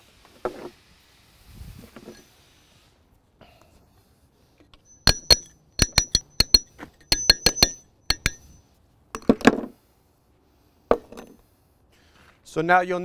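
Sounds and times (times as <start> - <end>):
hammer tapping steel chisel: 4.8 - 8.6.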